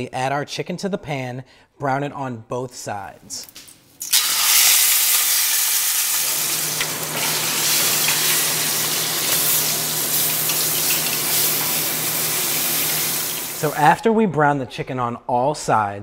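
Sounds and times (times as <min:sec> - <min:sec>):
chicken sizzling in hot oil: 0:04.0 - 0:13.7.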